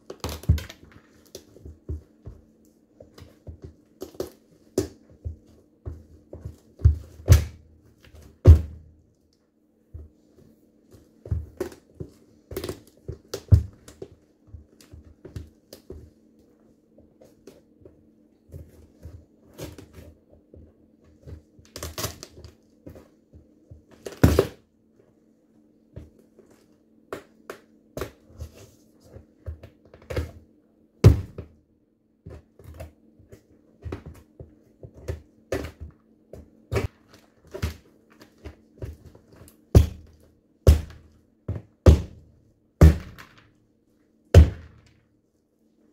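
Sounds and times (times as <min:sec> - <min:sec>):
sneakers stomping on pumpkin: 0:08.4 - 0:09.0, 0:31.0 - 0:31.5, 0:39.7 - 0:43.3, 0:44.4 - 0:44.8.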